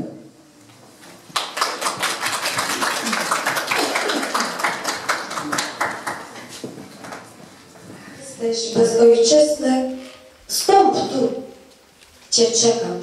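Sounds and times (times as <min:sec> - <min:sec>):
audience applauding: 0:01.2 - 0:07.4.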